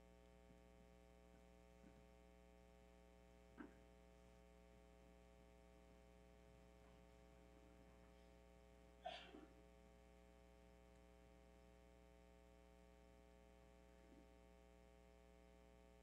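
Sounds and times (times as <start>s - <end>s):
steady electrical hum: 0.0s - 16.0s.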